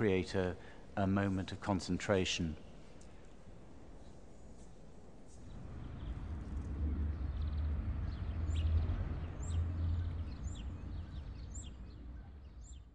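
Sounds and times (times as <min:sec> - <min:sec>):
low steady rumble: 0:05.0 - 0:12.9
bird chirping: 0:05.4 - 0:12.9.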